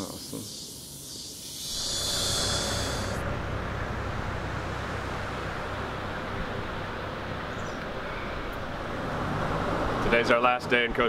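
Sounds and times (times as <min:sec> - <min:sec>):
road traffic: 0:00.0 - 0:11.0
wind: 0:00.0 - 0:11.0
low hum: 0:01.5 - 0:09.1.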